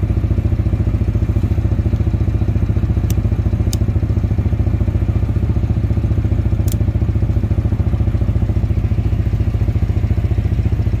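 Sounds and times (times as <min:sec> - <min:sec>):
motorcycle engine running: 0:00.0 - 0:11.0
sharp click: 0:03.0 - 0:03.9, 0:06.6 - 0:06.8.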